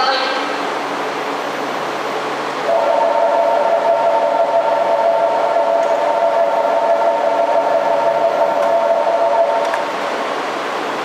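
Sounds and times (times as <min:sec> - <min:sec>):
electronic departure bell ringing: 0:02.7 - 0:09.8.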